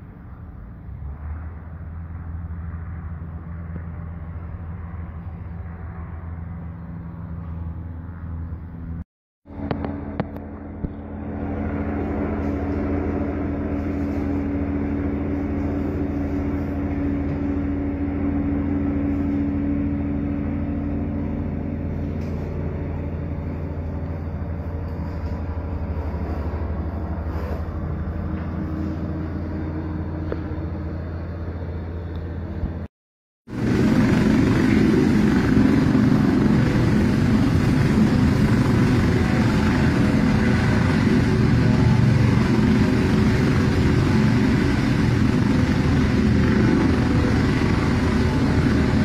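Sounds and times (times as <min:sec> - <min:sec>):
helicopter rotor drone: 0:00.0 - 0:32.9, 0:33.5 - 0:49.0.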